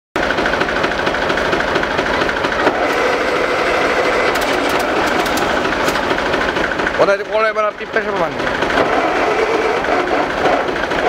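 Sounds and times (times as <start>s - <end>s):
tractor engine idling: 0.2s - 11.0s.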